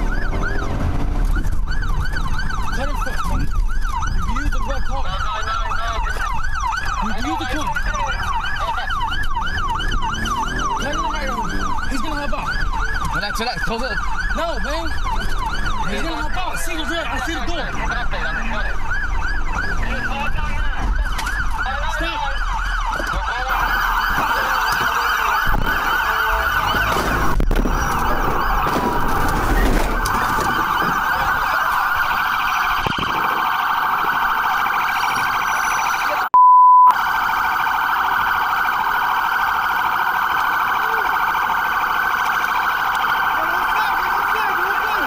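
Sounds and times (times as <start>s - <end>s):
police sirens wailing: 0.0s - 45.0s
loud steady bleep tone: 23.5s - 38.0s.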